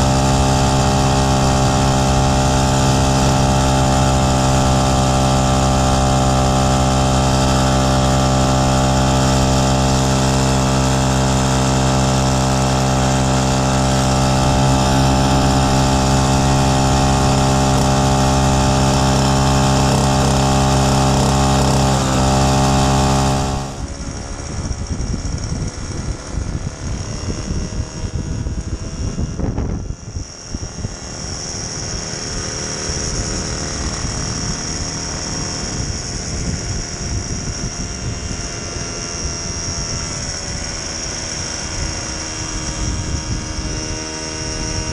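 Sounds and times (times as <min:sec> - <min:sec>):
rough moped engine: 0:00.0 - 0:44.9
two-stroke engine buzzing: 0:00.0 - 0:44.9.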